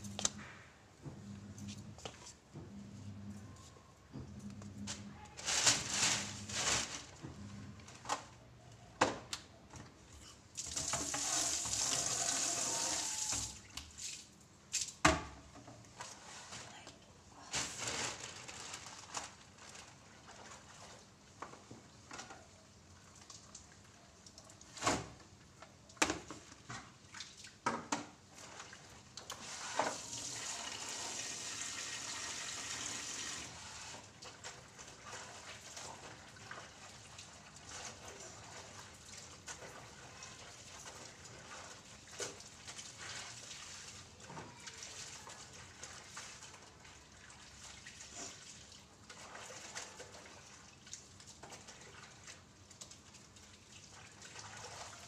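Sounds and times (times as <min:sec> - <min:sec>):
tap running into basin: 0:10.6 - 0:14.0
splashing and rubbing wet cloth: 0:17.4 - 0:21.4, 0:22.4 - 0:30.4, 0:33.6 - 0:55.0.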